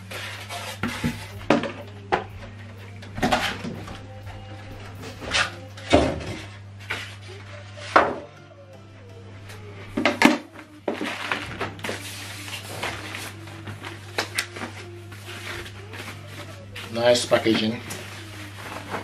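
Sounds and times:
steady low hum: 0.0 - 19.0
plastic wrap rustling: 10.9 - 19.0.

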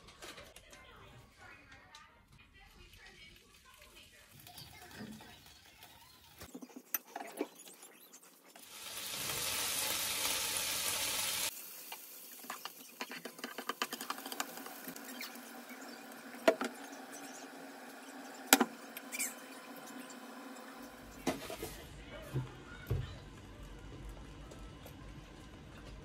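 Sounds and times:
bacon sizzling in a pan: 3.1 - 6.5, 8.6 - 21.6.

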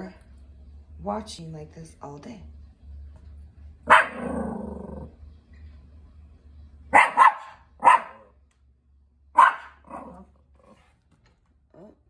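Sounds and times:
small dog barking: 3.9 - 4.5, 6.9 - 8.4, 9.3 - 10.3.

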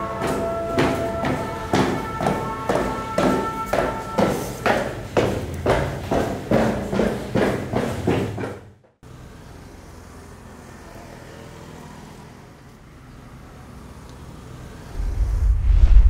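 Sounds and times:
loud rhythmic thumps: 0.0 - 8.6.

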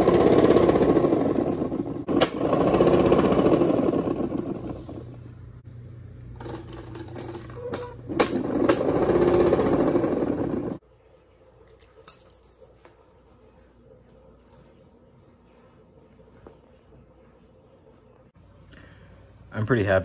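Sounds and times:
motor whirring rattle: 0.0 - 10.8.

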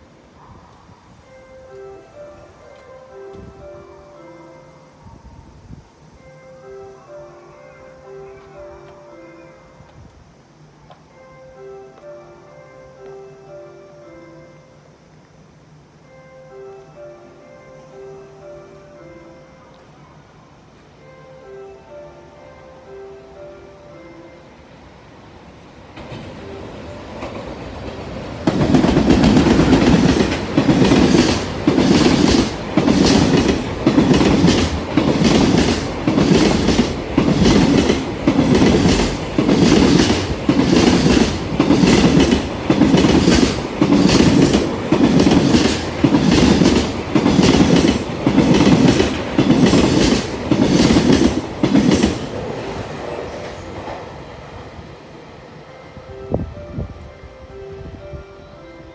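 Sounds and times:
train wheels clattering over joints: 27.1 - 52.4.

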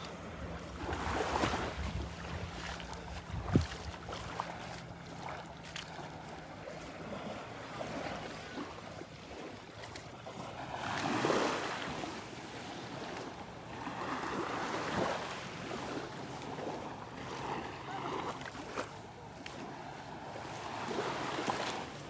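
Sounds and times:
waves washing on sandy beach: 0.0 - 22.0
wind on microphone: 0.5 - 4.1.

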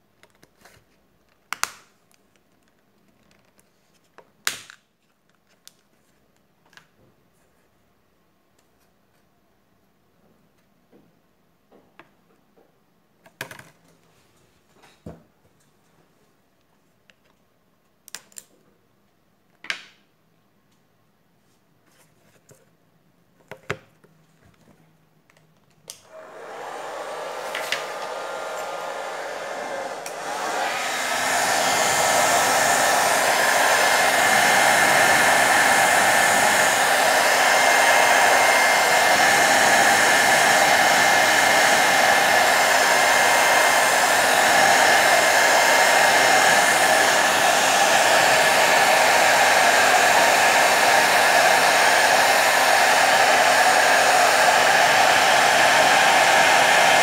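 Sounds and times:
hot-air blower rushing: 26.0 - 57.0.

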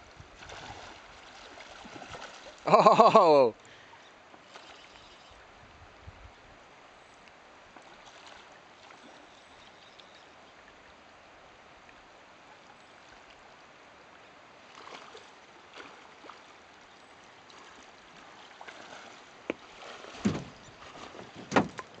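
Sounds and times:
shallow river running: 0.0 - 22.0
splashing from wading: 0.4 - 3.1, 7.8 - 9.3, 14.6 - 16.6, 17.4 - 22.0
heavy splashes: 18.4 - 22.0.

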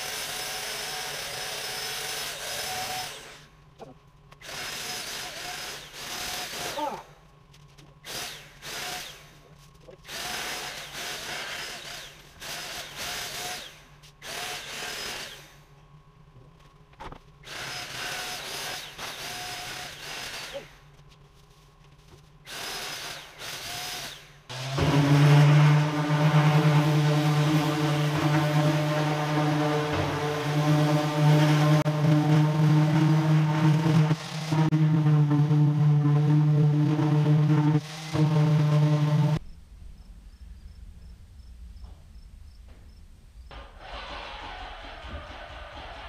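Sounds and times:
loud motor hum: 22.8 - 39.4.

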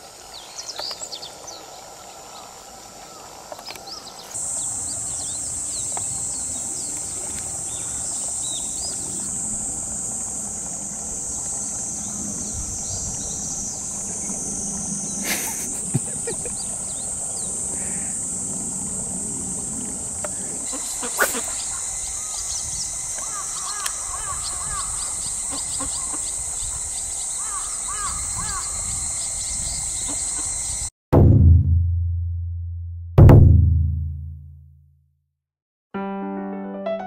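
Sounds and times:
high-pitched insect drone: 4.4 - 30.9.

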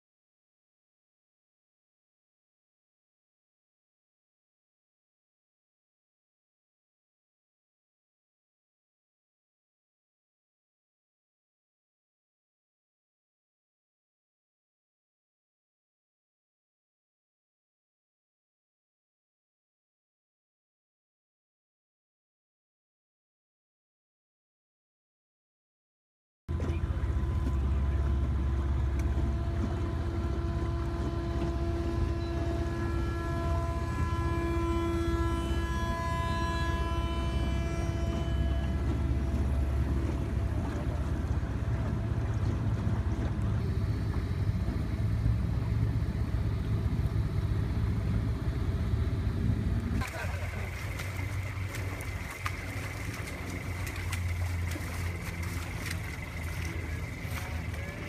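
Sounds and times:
boat motor running: 26.5 - 58.0
engine idling: 26.5 - 58.0
thin high whine: 31.1 - 40.0, 50.0 - 58.0.

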